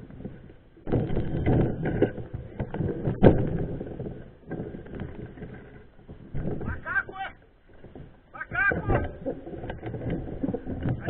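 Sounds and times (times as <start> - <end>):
mountain bike rolling on dirt: 0.0 - 11.0
bike rattling and knocking: 7.8 - 11.0.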